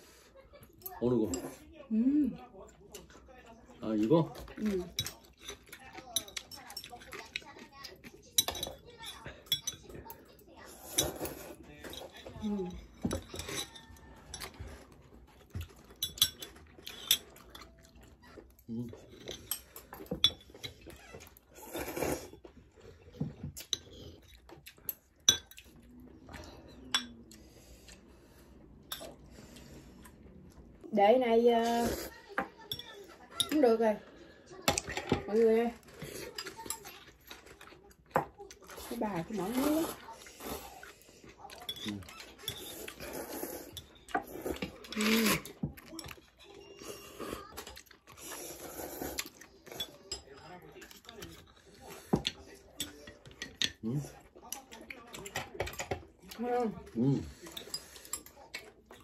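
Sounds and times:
noodles slurped and chewed: 2.4 - 30.8, 33.0 - 59.0
chopsticks clinking on bowls: 4.0 - 22.5, 23.1 - 28.0, 32.2 - 34.0, 34.6 - 48.6, 49.2 - 59.0
slurping noodles: 42.5 - 45.6, 48.1 - 49.4.

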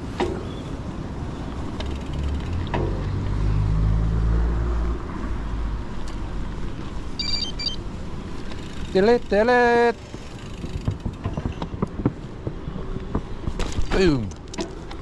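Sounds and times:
bicycle rolling over grass: 1.5 - 3.4, 7.9 - 15.0.

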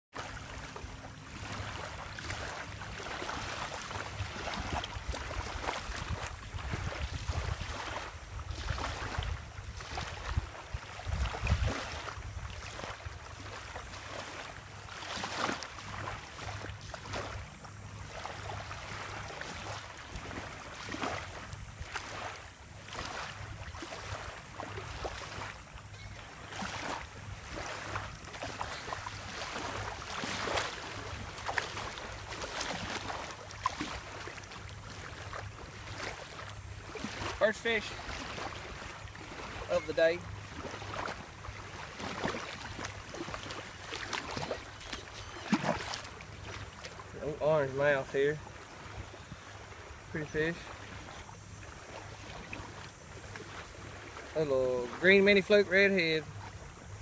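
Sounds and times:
small waves washing on shore: 0.1 - 57.0
wind gusting on microphone: 4.3 - 12.7.

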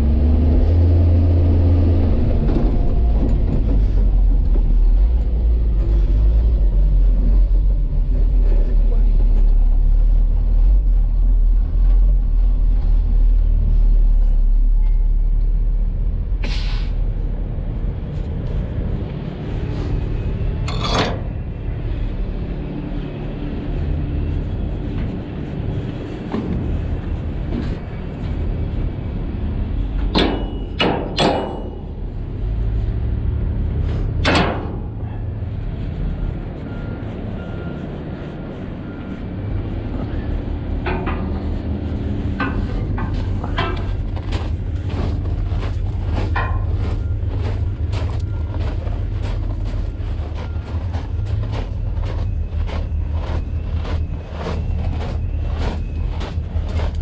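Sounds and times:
rail cars rumbling: 0.0 - 57.0
metallic clanks and bangs: 20.5 - 21.6, 30.0 - 32.1, 34.1 - 35.1, 40.7 - 57.0.

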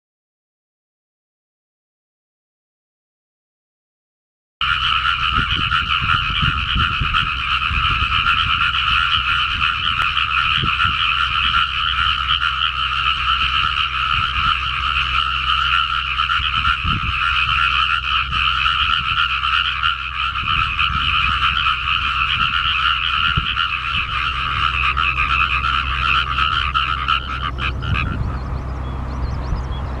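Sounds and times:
frog chorus: 4.6 - 30.0.

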